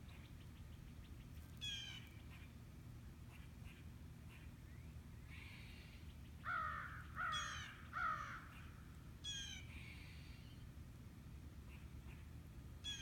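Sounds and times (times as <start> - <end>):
crow cawing: 6.5 - 8.5.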